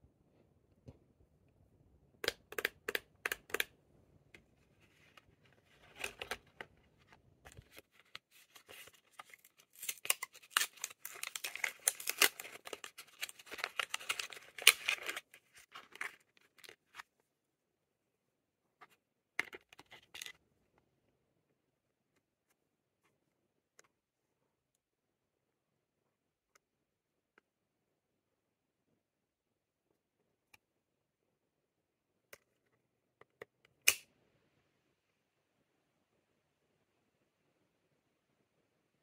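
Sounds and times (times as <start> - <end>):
wrapping crinkling and tearing: 7.6 - 17.0
packaging clicks: 8.5 - 16.8.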